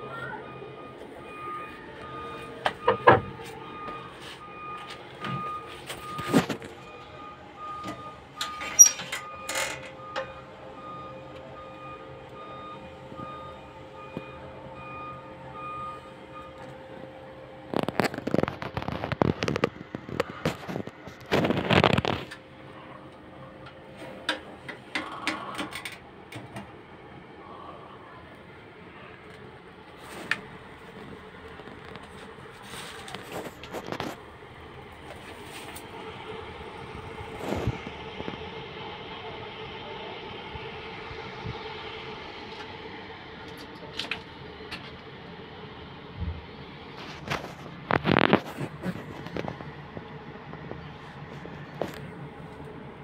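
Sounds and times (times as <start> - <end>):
faint pulsing high tone: 0.0 - 17.7
machine hum: 0.0 - 53.0.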